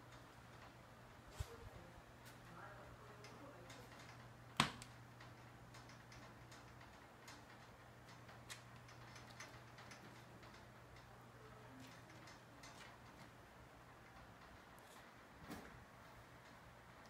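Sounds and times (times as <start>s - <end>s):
light ticks and clicks: 3.1s - 15.2s.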